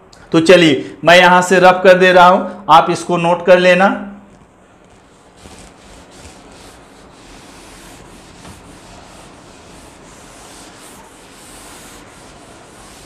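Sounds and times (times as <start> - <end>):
cloth rubbing on chalkboard: 4.3 - 13.0.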